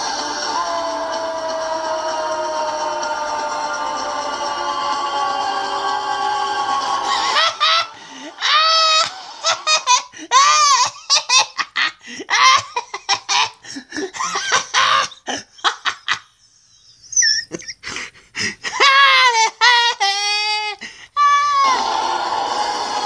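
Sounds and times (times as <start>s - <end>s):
music: 0.0s - 8.4s, 21.7s - 23.0s
young child laughing: 7.3s - 16.3s, 17.0s - 18.0s, 18.7s - 20.8s
child squealing: 18.8s - 22.2s.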